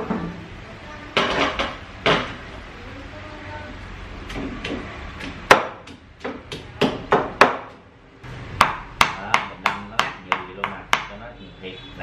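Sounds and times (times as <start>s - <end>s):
stone pestle pounding in mortar: 4.3s - 7.8s, 8.6s - 11.2s.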